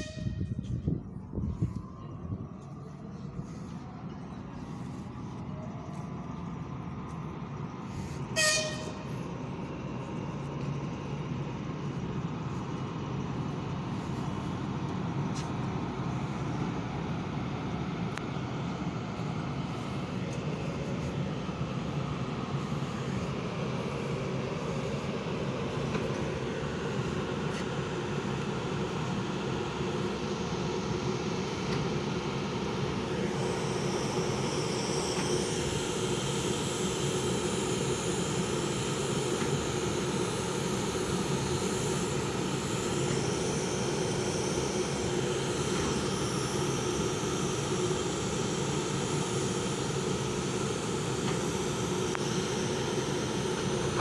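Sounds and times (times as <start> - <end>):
locomotive horn toot: 0.0 - 0.7, 8.3 - 9.1
locomotive machinery running: 0.0 - 54.0.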